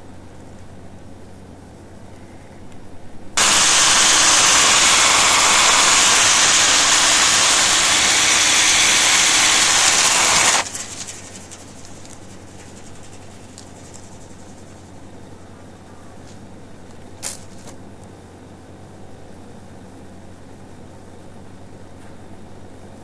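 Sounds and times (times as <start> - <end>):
chainsaw cutting wood: 3.4 - 11.6.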